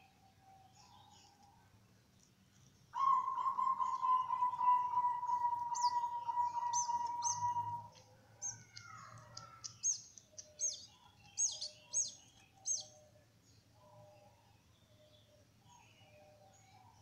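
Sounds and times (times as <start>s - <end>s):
soft low bird calls: 0.0s - 17.0s
canaries chirping: 3.3s - 13.0s.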